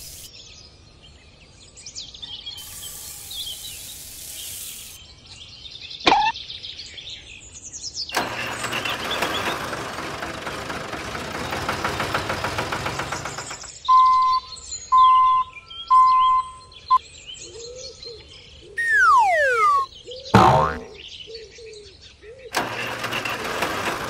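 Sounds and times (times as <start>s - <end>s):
steady hiss: 0.0s - 0.3s, 2.6s - 5.0s
falling whistle-like glide: 18.8s - 19.9s
short electronic beeps: 18.8s - 21.0s
birds chirping: 18.8s - 21.3s.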